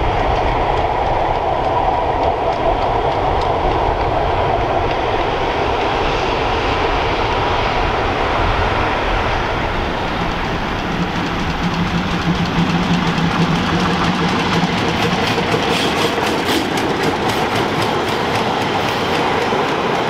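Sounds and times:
train wheels clicking over rails: 0.0 - 20.0.

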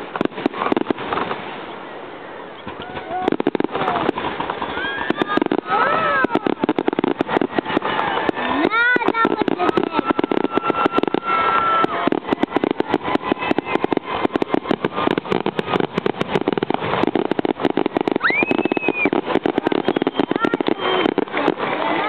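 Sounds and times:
firework crackle: 0.0 - 22.0
rising whistle: 18.2 - 21.2.

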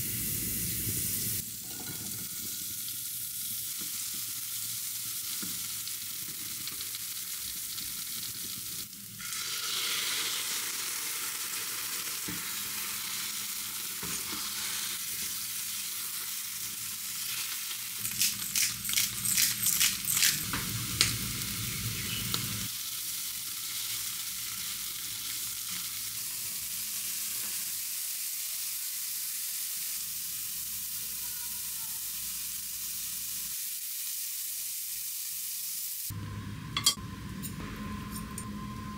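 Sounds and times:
food sizzling in a frying pan: 0.0 - 37.5
pepper grinder clicking: 18.0 - 21.2.

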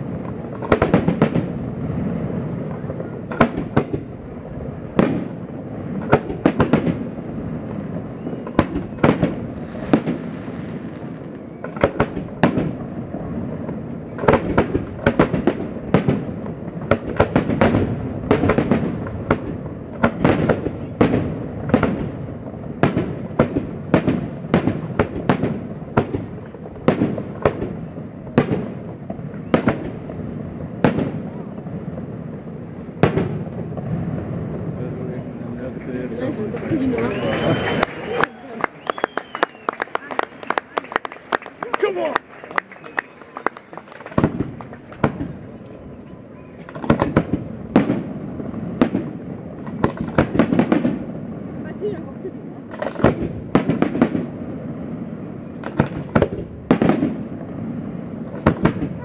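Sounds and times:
firework shells bursting: 37.1 - 51.2, 52.7 - 54.4, 55.6 - 57.5.

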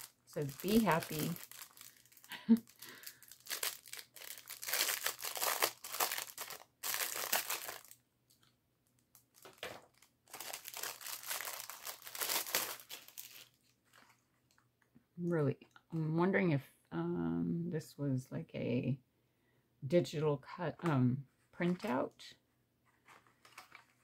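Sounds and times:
plastic bag crinkling: 0.0 - 14.6.

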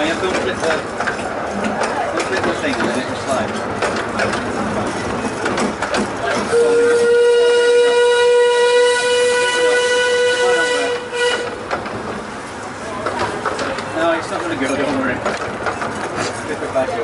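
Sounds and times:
train running rattle: 0.0 - 17.0
steam locomotive whistle blast: 6.5 - 11.6.

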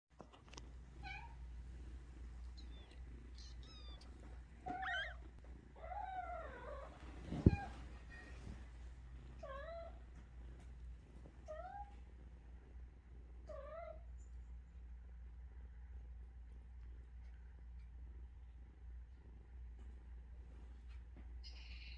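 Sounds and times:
kittens mewing: 2.6 - 7.8.

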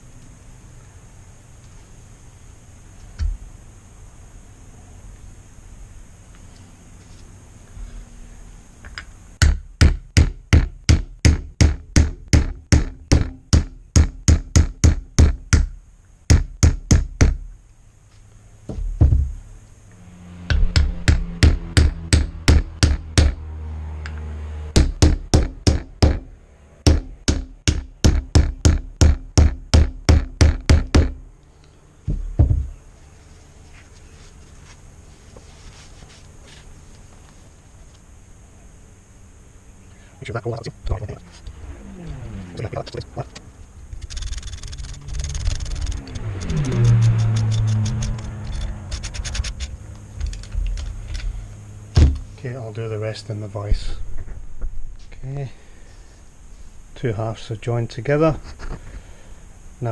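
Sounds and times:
hammer knocking on wooden block: 9.4 - 17.4, 20.5 - 23.4, 24.8 - 26.3, 26.9 - 31.2.

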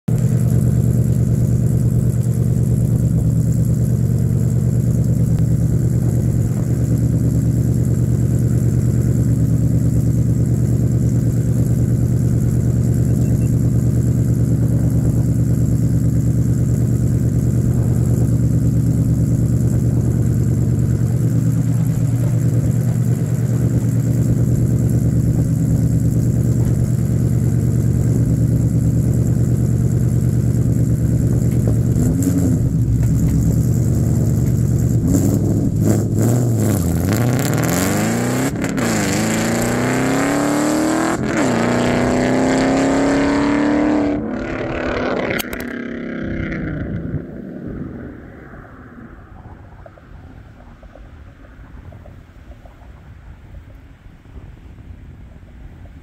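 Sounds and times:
car exhaust idling: 0.1 - 39.9.

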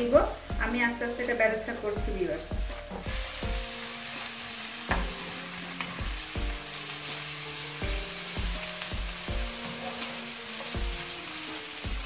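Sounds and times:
background music with slow beat: 0.0 - 12.0
onions sizzling in hot oil: 0.0 - 12.0.

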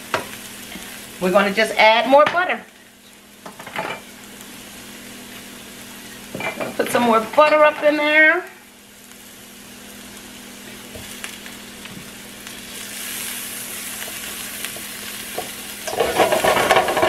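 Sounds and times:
mushrooms sizzling in butter: 0.0 - 17.0
knife scraping pan: 15.9 - 17.0.

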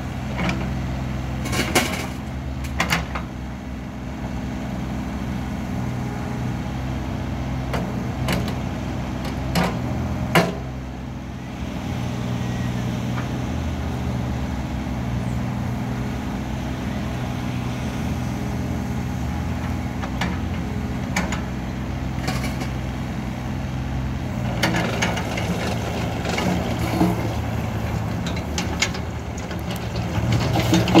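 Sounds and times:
excavator diesel engine running: 0.0 - 31.0.

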